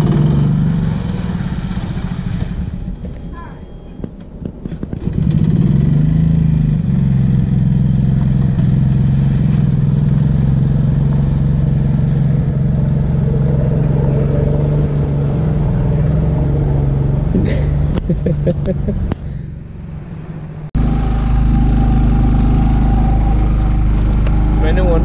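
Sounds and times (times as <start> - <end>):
small engine running: 20.8 - 25.0.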